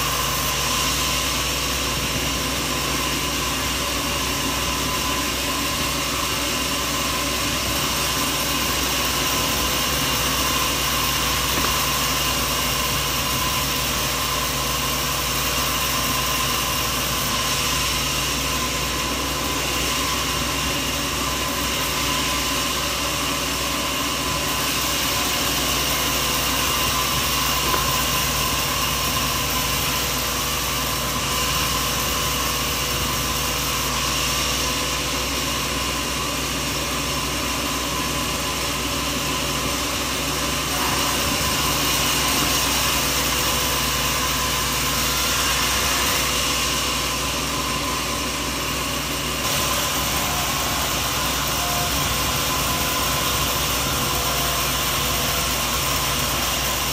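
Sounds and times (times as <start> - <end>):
machinery whining tones: 0.0 - 56.9
sawmill machinery droning: 0.0 - 56.9.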